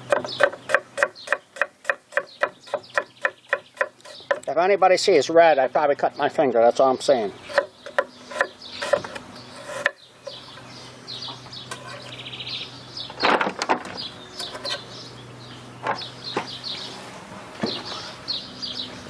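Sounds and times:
knife chopping on wooden board: 0:00.0 - 0:04.5, 0:07.5 - 0:10.0
small birds chirping: 0:00.0 - 0:19.0.

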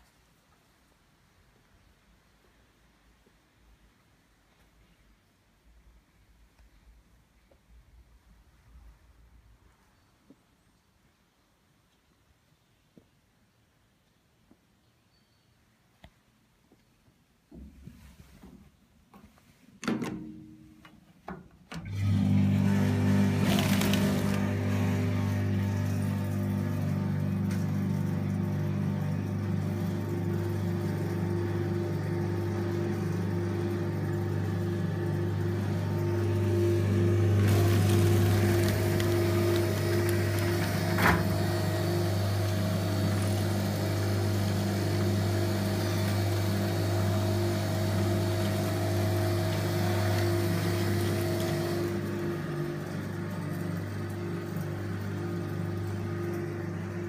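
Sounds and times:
conveyor drive humming: 0:21.7 - 0:57.0.

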